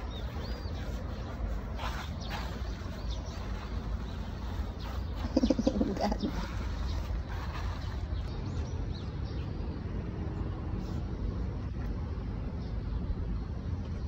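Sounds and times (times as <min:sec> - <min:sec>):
low pulsing bird call: 0:00.0 - 0:09.6
faint high bird chirps: 0:00.0 - 0:09.9
steady low rumble: 0:00.0 - 0:14.0.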